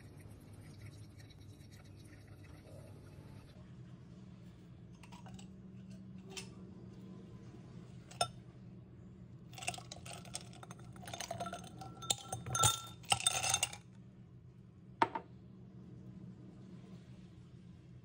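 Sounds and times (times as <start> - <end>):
ice cubes clinking in glass: 9.6 - 13.8.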